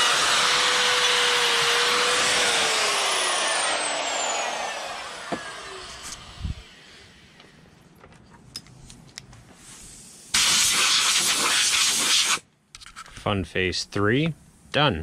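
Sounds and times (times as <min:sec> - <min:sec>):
die grinder whining: 0:00.0 - 0:07.5.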